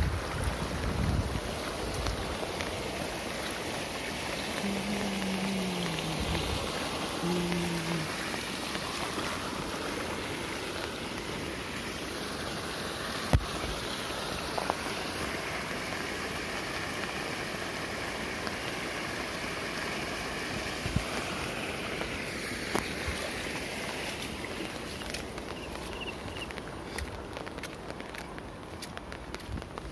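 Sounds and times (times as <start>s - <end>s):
rain falling on pond: 0.0s - 29.9s.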